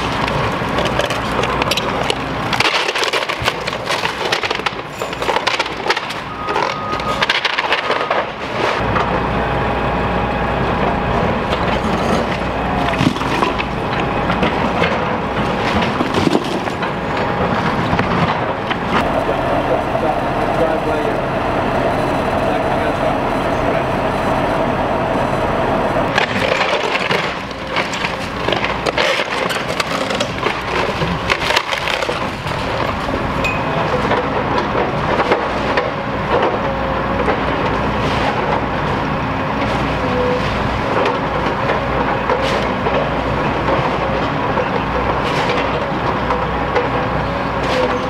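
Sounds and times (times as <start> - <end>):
wood cracking and splintering: 0.0 - 9.2, 11.4 - 19.8, 26.1 - 48.0
debris crunching: 0.0 - 9.6, 10.5 - 48.0
excavator engine: 0.0 - 48.0
wavering hum: 18.5 - 28.1.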